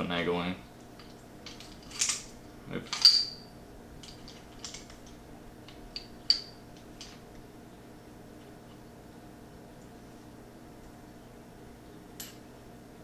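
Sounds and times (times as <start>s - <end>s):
pistol parts clicking and clinking: 1.4s - 2.3s.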